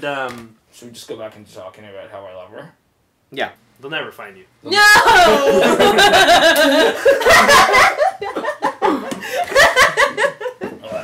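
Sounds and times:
people laughing loudly: 4.8s - 10.8s.

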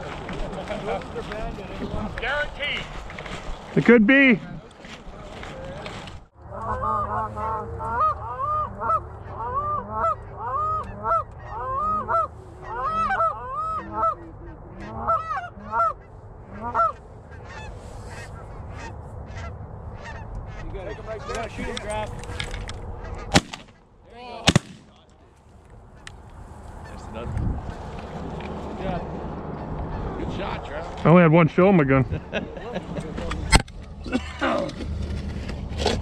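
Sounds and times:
geese honking: 6.4s - 22.0s, 22.9s - 23.4s, 25.8s - 27.3s
shotgun shot: 23.3s - 23.7s, 24.5s - 24.9s.

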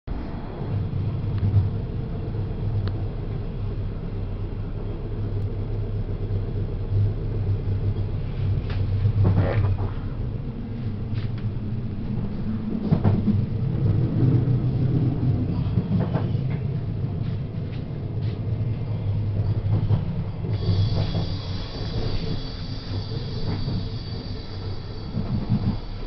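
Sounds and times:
train rumble inside carriage: 0.1s - 26.0s.

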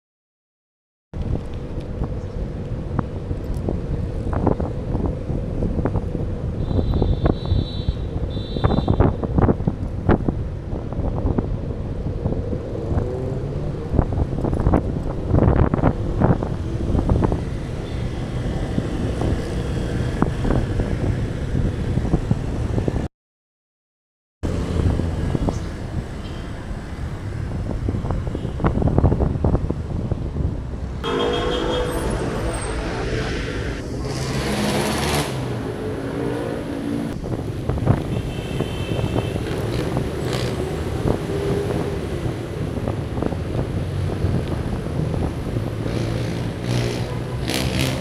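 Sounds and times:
road and traffic noise: 1.2s - 23.1s, 24.4s - 48.0s
wind buffeting microphone: 1.2s - 23.1s, 27.1s - 31.1s, 37.1s - 46.0s
short high tones: 31.0s - 33.9s.

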